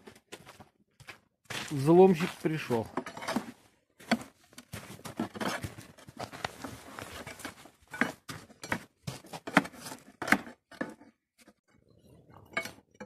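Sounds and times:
crowbar scraping on metal: 0:02.9 - 0:13.0.

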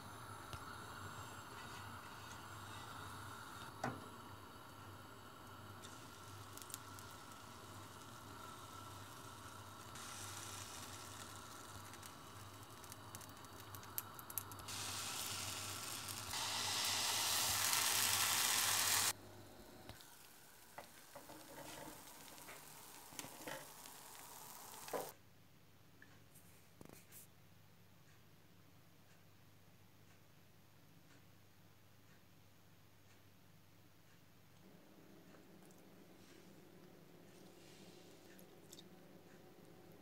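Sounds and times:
pancake batter sizzling: 0:00.0 - 0:25.1.

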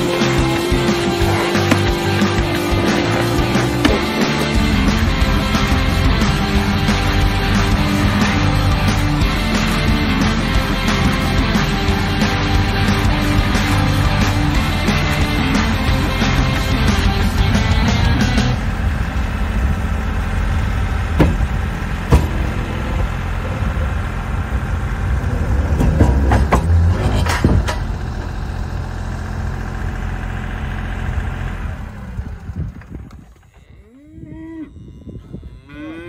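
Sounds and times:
tractor diesel engine under load: 0:00.0 - 0:33.8
cow mooing: 0:00.9 - 0:08.5, 0:33.5 - 0:36.0
sharp knocks: 0:21.2 - 0:21.5, 0:22.1 - 0:22.6, 0:25.8 - 0:27.9.

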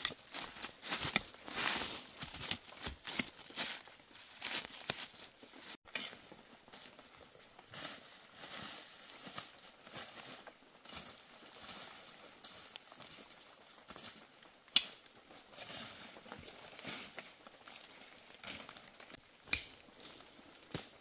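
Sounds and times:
sharp snaps of plant stems: 0:19.4 - 0:19.8.

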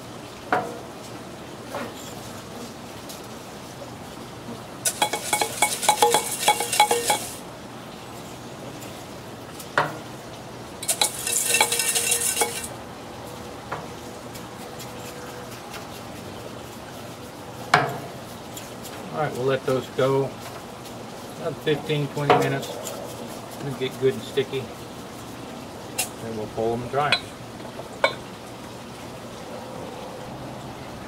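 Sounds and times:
steady low hiss: 0:00.0 - 0:14.3
metal mop clinking against metal: 0:04.9 - 0:07.4, 0:10.8 - 0:12.7.

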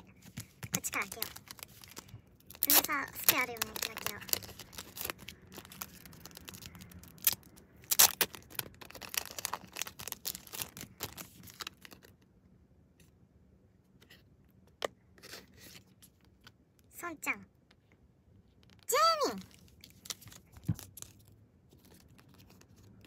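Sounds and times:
paper packaging crinkling and tearing: 0:00.0 - 0:12.2, 0:19.5 - 0:23.0.

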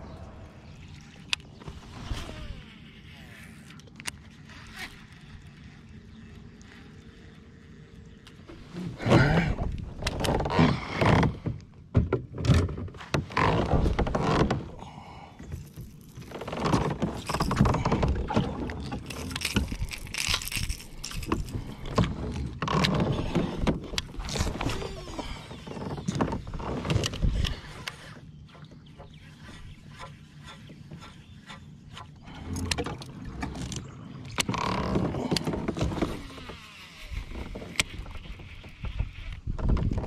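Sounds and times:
water noise: 0:00.0 - 0:11.8, 0:13.0 - 0:40.0
kayak knocks and rubbing: 0:08.5 - 0:14.8, 0:37.9 - 0:40.0.

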